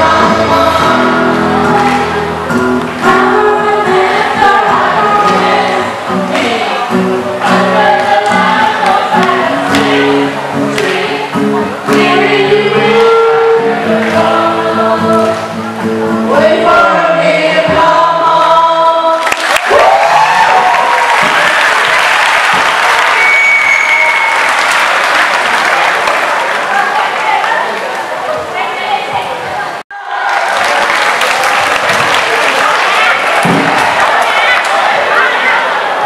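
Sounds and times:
children's choir singing: 0:00.0 - 0:19.5, 0:32.9 - 0:36.0.

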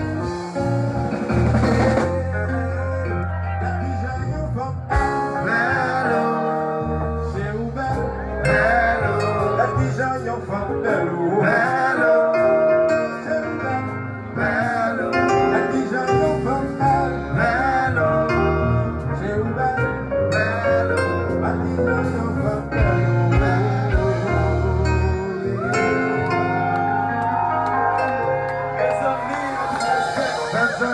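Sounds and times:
man singing into a microphone: 0:00.0 - 0:26.7, 0:28.8 - 0:30.9
bass line: 0:00.0 - 0:30.9
keyboards: 0:00.0 - 0:30.9.

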